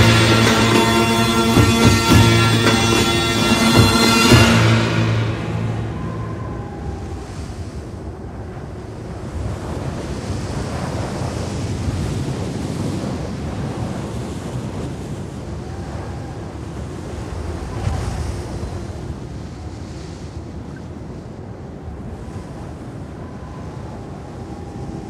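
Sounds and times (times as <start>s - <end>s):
rushing wind: 0.0s - 25.0s
faint whistling tones: 4.8s - 8.1s, 22.2s - 25.0s.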